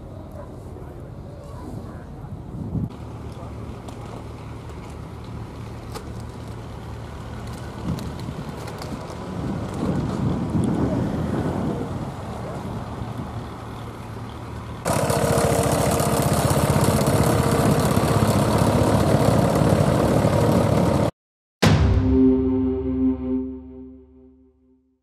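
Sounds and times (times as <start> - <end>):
wind noise on microphone: 1.7 - 2.9, 7.6 - 13.6
tractor engine running: 12.9 - 21.1
outro jingle: 21.6 - 24.9.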